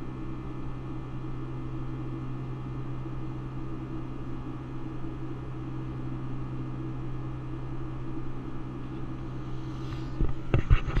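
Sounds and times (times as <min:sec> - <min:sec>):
airplane cabin engine drone: 0:00.0 - 0:11.0
knocks and rubs: 0:10.2 - 0:11.0.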